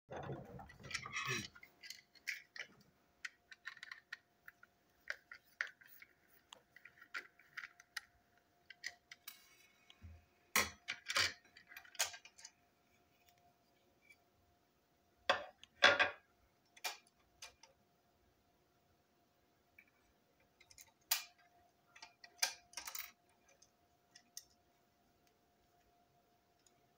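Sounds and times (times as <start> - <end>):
plastic toy clicks and rattles: 0.2 - 9.4, 10.6 - 12.6, 20.6 - 24.6.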